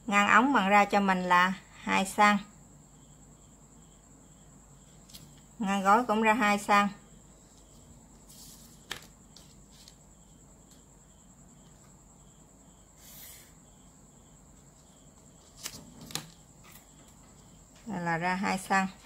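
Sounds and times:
marker scratching on paper: 13.0 - 13.6.

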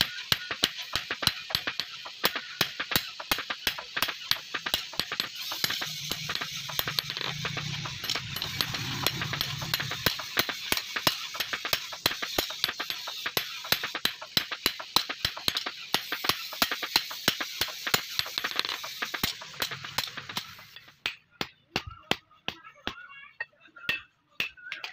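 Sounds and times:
hammer striking blade on anvil: 0.0 - 23.0
low hum: 5.6 - 10.2.

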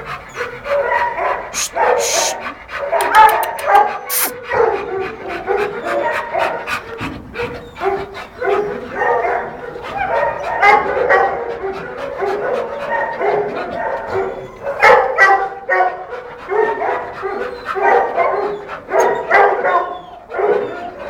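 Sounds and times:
dog yelping: 0.4 - 4.8, 7.5 - 21.0
dog whining and yipping: 1.5 - 4.4, 12.8 - 15.1, 17.2 - 21.0.

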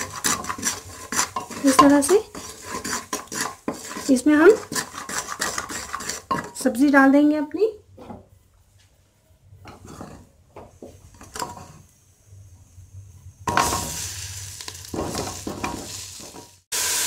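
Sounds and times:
sizzle in hot oil: 0.0 - 6.4, 13.4 - 17.0.

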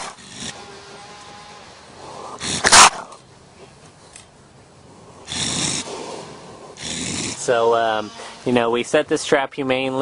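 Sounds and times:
raccoon hissing: 0.0 - 0.6, 1.9 - 3.2, 5.0 - 8.5.

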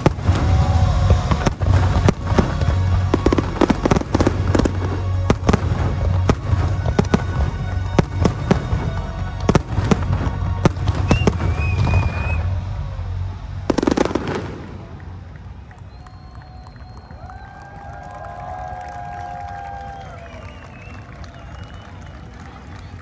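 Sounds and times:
fireworks cracking and banging: 0.0 - 17.8.

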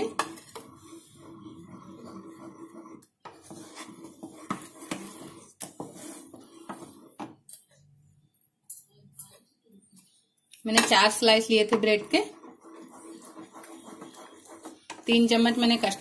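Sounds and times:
wooden spatula scraping saucepan: 0.0 - 7.4, 10.7 - 16.0.

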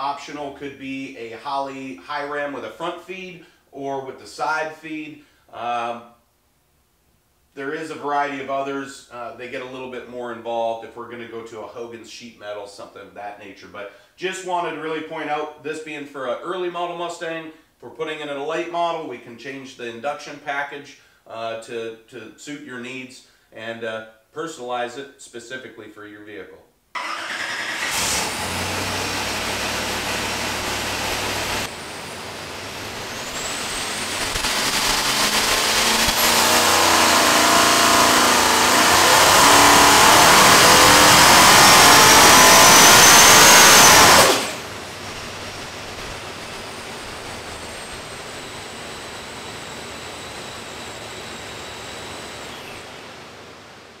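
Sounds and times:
engine running on dyno: 27.0 - 54.0
supercharger whine: 27.0 - 54.0.

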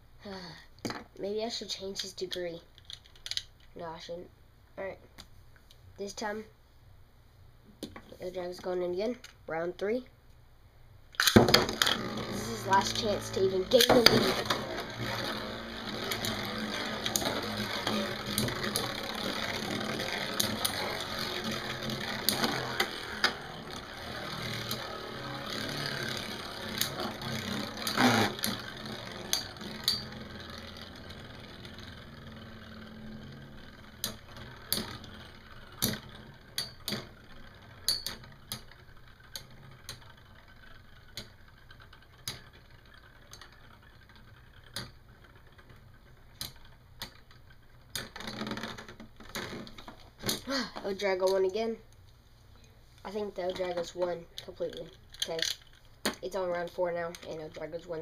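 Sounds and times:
spinning tops clacking together: 11.2 - 50.4, 53.5 - 58.0
spinning tops whirring: 11.2 - 51.8.

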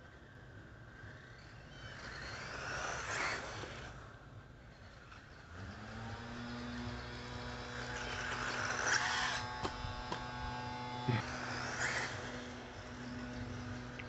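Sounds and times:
electric motor hum: 5.2 - 14.0.

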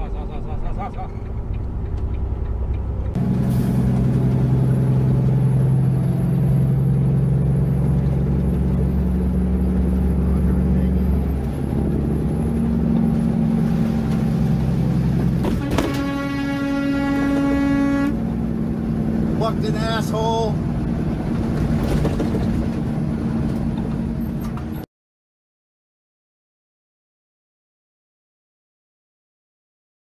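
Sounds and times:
vehicle engine drone and road noise: 0.0 - 24.9
vehicle horn blast: 15.4 - 18.2.

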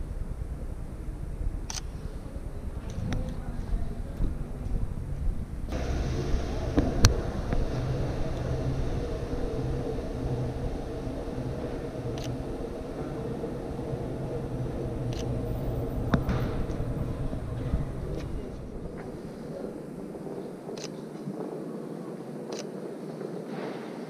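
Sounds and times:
vehicle engines rumbling: 0.0 - 20.9
traffic hiss: 5.0 - 24.0.

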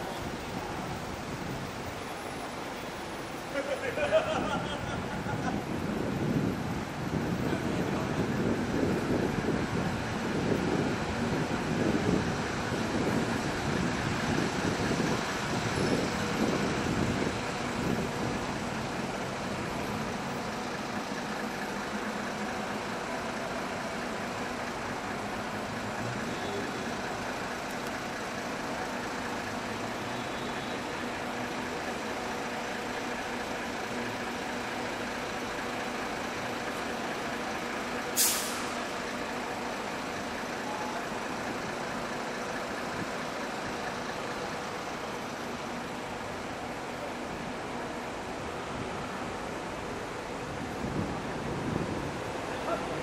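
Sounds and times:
traffic idling hum: 0.0 - 53.0
truck air brake hiss: 38.0 - 39.0.

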